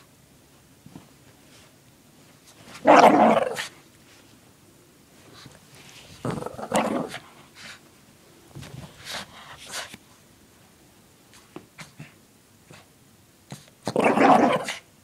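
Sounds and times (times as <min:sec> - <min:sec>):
dog growling bark: 0:02.8 - 0:03.8, 0:06.2 - 0:07.2, 0:13.8 - 0:14.9.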